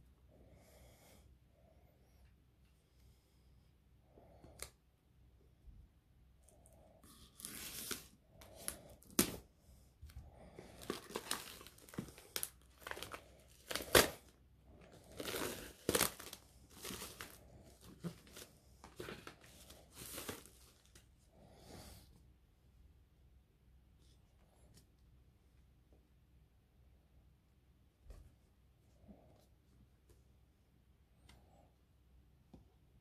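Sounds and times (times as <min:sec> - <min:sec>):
plastic shrink-wrap tearing: 0:10.8 - 0:14.2, 0:15.0 - 0:17.4.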